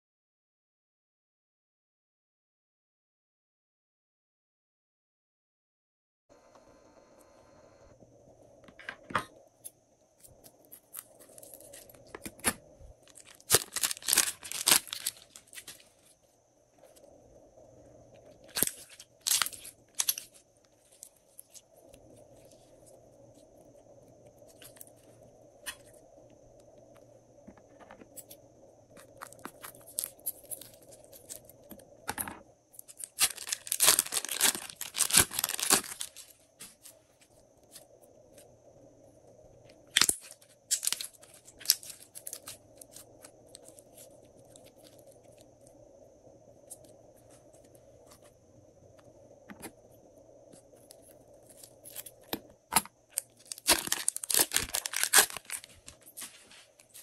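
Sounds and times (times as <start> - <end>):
slime crackling and popping: 12.2 - 15.8, 33.0 - 36.2, 53.2 - 55.7.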